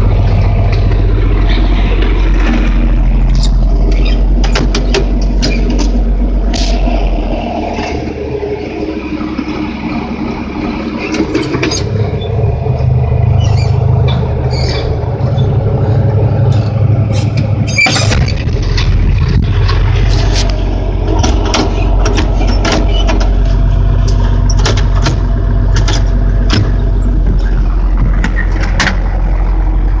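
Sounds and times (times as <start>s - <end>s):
tractor diesel engine running: 0.0s - 30.0s
cab clicks and rattles: 16.6s - 29.3s.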